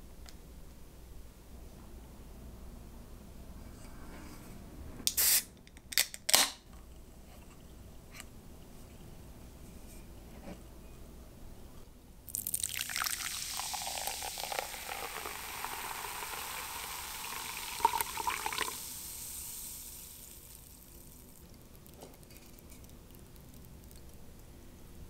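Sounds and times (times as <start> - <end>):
foam fizzing: 12.3 - 22.7
soda pouring into a jug: 12.3 - 24.1.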